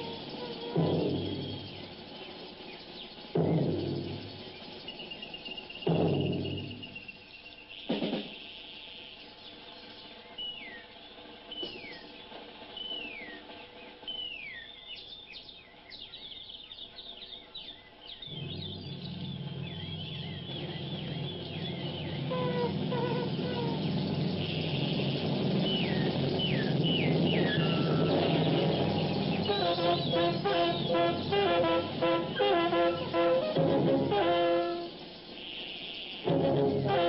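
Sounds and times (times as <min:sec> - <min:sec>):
low steady drone: 0:00.0 - 0:04.8, 0:18.3 - 0:37.0
hiss: 0:00.0 - 0:15.6, 0:18.3 - 0:37.0
descending whistled bird calls: 0:00.0 - 0:37.0
rhythmic pitched notes: 0:18.3 - 0:37.0.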